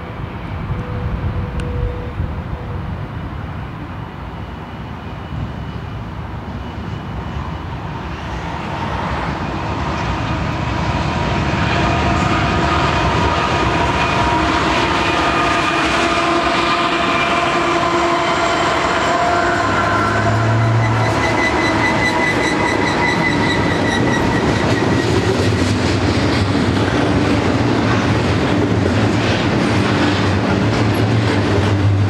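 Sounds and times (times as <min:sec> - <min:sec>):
diesel locomotives passing: 0:00.0 - 0:32.0.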